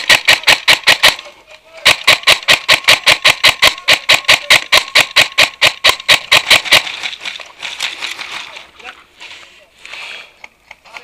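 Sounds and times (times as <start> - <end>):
airsoft rifle rapid shots: 0.0 - 7.1.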